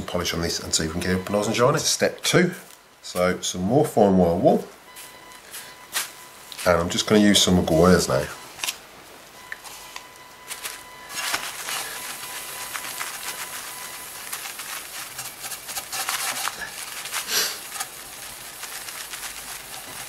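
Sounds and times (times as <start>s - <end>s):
steel wool scrubbing metal: 11.6s - 20.0s.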